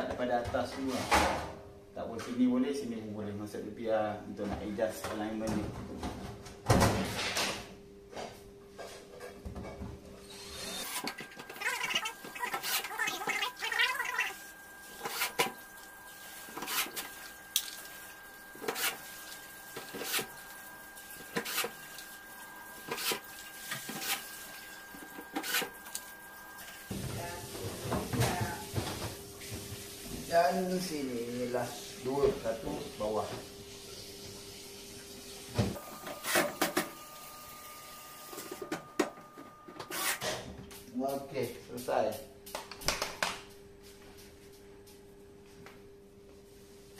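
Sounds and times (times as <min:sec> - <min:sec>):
cordless drill running in bursts: 0:10.3 - 0:11.3.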